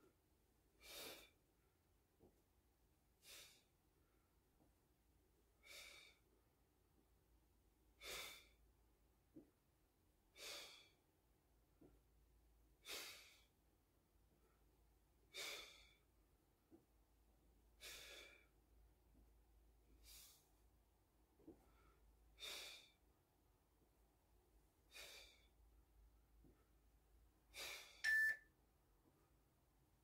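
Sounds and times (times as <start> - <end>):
man exhaling rhythmically: 15.3 - 16.0, 21.7 - 23.0, 24.9 - 25.6.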